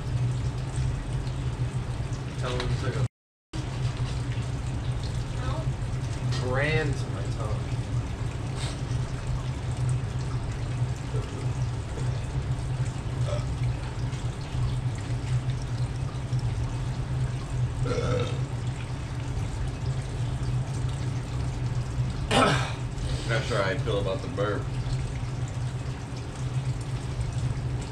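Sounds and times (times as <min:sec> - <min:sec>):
faint water trickling: 0:00.0 - 0:27.9
steady low hum: 0:00.0 - 0:27.9
person burping loudly: 0:13.2 - 0:13.5, 0:17.8 - 0:18.5, 0:22.3 - 0:22.8.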